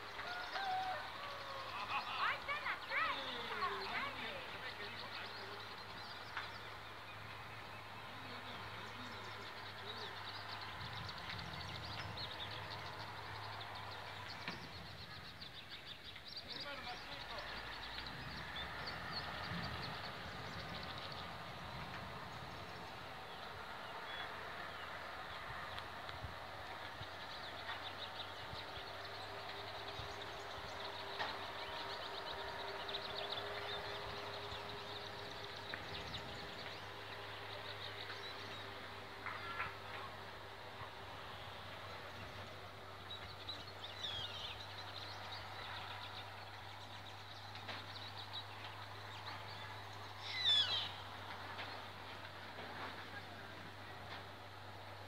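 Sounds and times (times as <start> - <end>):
small birds chirping: 0.0 - 55.0.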